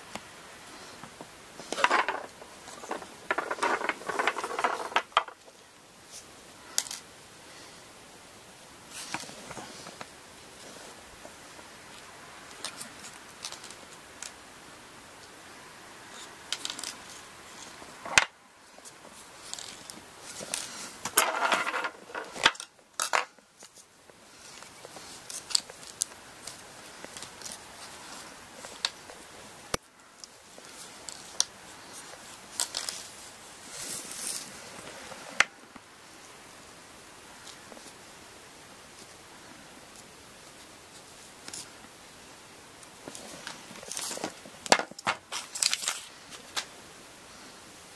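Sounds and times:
hand-sewing clicks and rustles: 12.4s - 14.4s, 16.2s - 33.2s.

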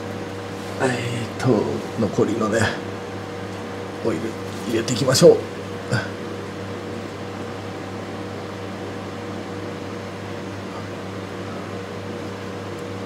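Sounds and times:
faint constant whine: 0.0s - 13.0s
steady mechanical hum: 0.0s - 13.0s.

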